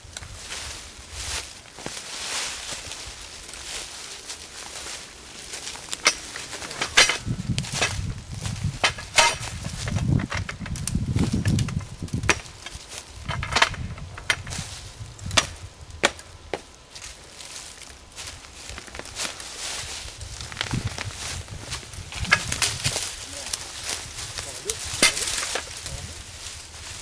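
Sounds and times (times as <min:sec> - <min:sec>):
dry leaf litter rustling: 0:00.0 - 0:13.3, 0:14.0 - 0:27.0
roots and stems snapping: 0:00.0 - 0:27.0.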